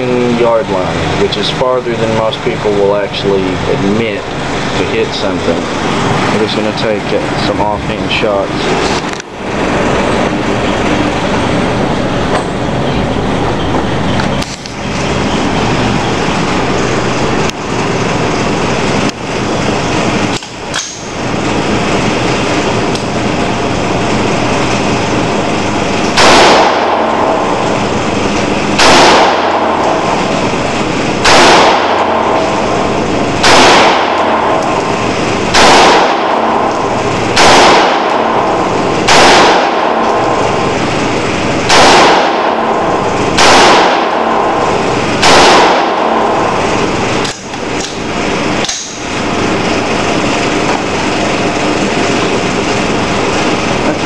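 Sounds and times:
steady loud noise: 0:00.0 - 0:54.0
rifle shots echoing indoors: 0:26.1 - 0:53.5.

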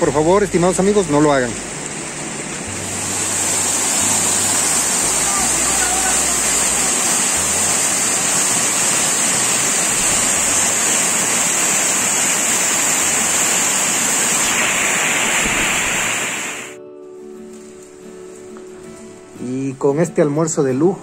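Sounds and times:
waterfall crashing onto rocks: 0:00.0 - 0:16.8.

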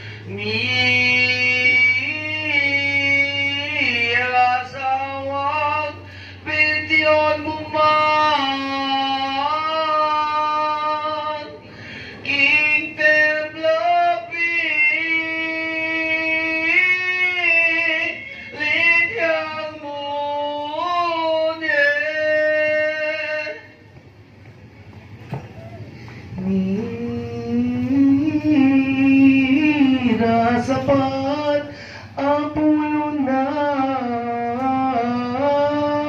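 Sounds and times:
low steady hum: 0:00.0 - 0:36.0
woman singing a slow chant: 0:26.3 - 0:36.0.

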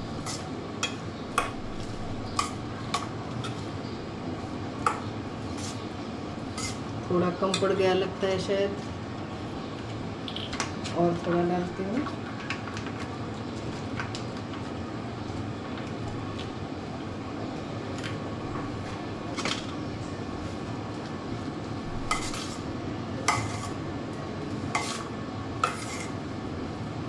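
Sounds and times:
spoon stirring filling in bowl: 0:23.2 - 0:23.8, 0:24.7 - 0:26.2.

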